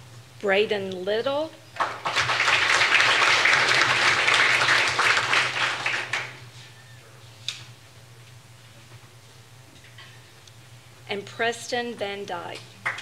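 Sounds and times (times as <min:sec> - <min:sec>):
audience applauding: 0:01.8 - 0:06.5.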